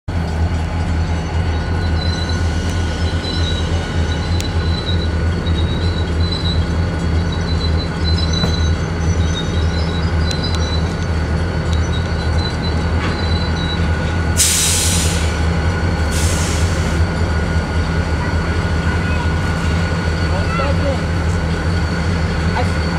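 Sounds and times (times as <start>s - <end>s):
diesel locomotives rumbling: 0.0s - 22.9s
wheel squeal on rails: 0.2s - 22.9s
air hiss bursts: 14.4s - 15.4s, 16.1s - 17.0s.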